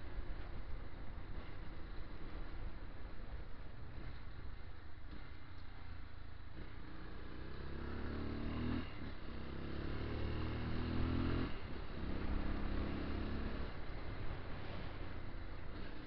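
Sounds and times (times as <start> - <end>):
wind and road noise: 0.0 - 16.0
motorcycle engine under throttle: 6.5 - 16.0.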